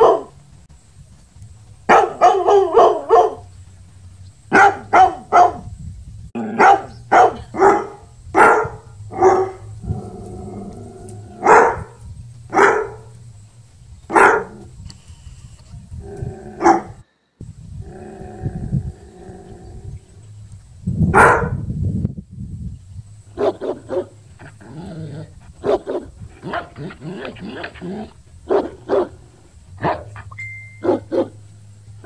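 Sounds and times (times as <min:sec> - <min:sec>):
dog barking: 0:00.0 - 0:00.4, 0:01.9 - 0:03.5, 0:04.5 - 0:05.7, 0:06.5 - 0:09.7, 0:11.4 - 0:13.1, 0:14.1 - 0:14.7, 0:16.6 - 0:17.0, 0:21.1 - 0:21.6, 0:23.4 - 0:24.2, 0:25.6 - 0:27.7, 0:28.5 - 0:29.2, 0:29.8 - 0:31.4.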